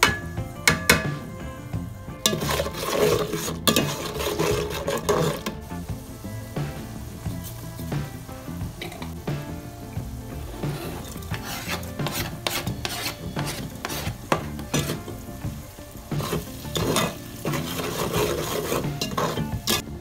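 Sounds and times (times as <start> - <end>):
food sizzling in hot oil: 0.0 - 20.0
metal spatula scraping pot: 2.2 - 5.7, 10.3 - 15.2, 16.1 - 20.0.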